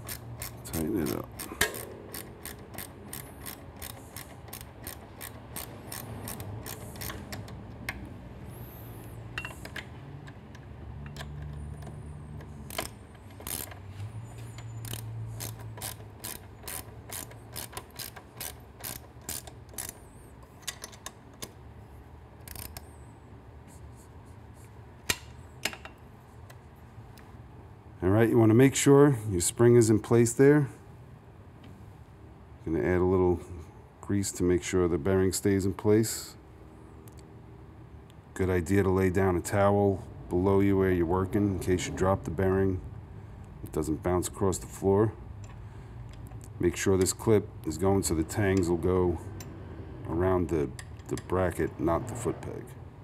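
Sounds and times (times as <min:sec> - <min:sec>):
hand ratchet clicking: 0:00.0 - 0:08.0, 0:09.4 - 0:13.9, 0:14.6 - 0:21.5, 0:22.4 - 0:22.9.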